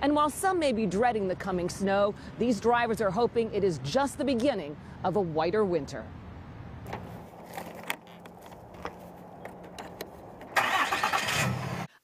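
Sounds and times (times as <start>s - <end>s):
truck engine cranking and starting: 10.4s - 12.0s.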